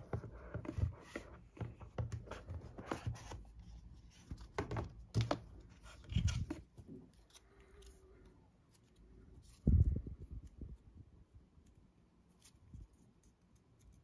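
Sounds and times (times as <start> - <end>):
cardboard knocks and scrapes: 0.0 - 7.0.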